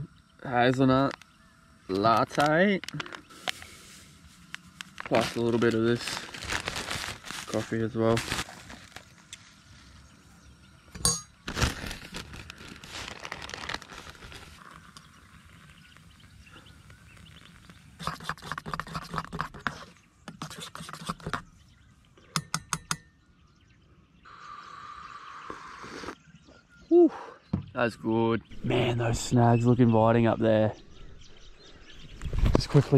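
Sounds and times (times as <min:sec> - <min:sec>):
plastic bag rustling: 0:03.0 - 0:10.0, 0:11.4 - 0:14.9
spoon tapping mug rim: 0:22.4 - 0:23.1.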